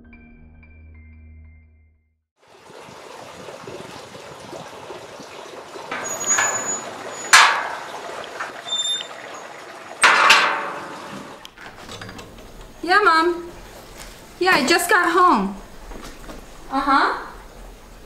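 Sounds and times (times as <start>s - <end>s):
metal gate clanks: 5.9s - 12.9s
gate hinge squeaking: 5.9s - 13.0s.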